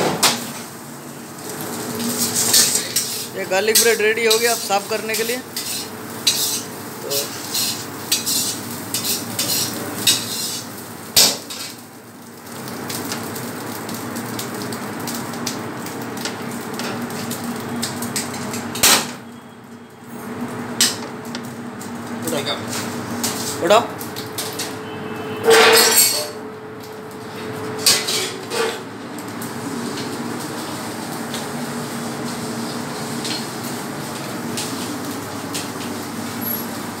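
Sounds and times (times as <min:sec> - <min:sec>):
kitchen machinery hum: 0:00.0 - 0:37.0
metal utensils and pans clattering: 0:02.2 - 0:11.8, 0:25.4 - 0:26.4, 0:27.8 - 0:28.9.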